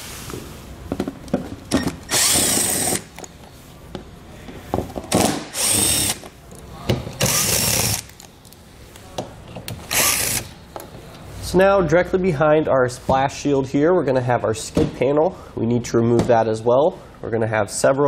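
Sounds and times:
cordless drill running: 2.1s - 3.1s, 5.5s - 6.2s, 7.2s - 8.1s, 9.9s - 10.5s.

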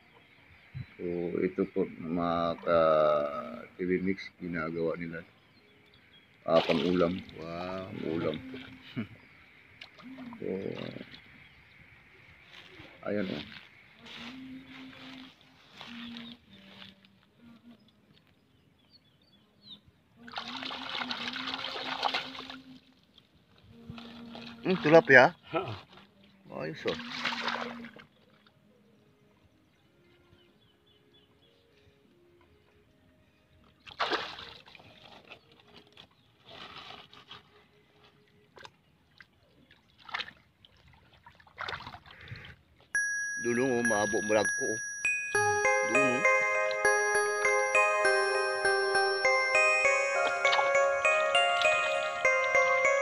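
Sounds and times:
shallow water splashing: 6.4s - 9.0s, 27.0s - 28.2s, 33.9s - 37.4s, 39.2s - 42.5s
hands splashing water: 6.6s - 7.4s, 33.9s - 35.3s, 40.0s - 42.3s.

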